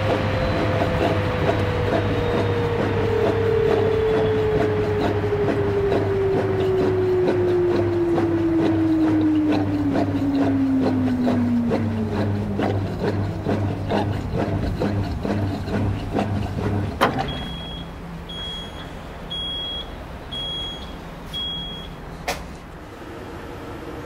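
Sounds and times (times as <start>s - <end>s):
washing machine motor hum: 0.0s - 24.0s
machine beeps: 3.7s - 4.8s, 17.2s - 22.0s
washing machine drum thudding: 16.6s - 17.8s.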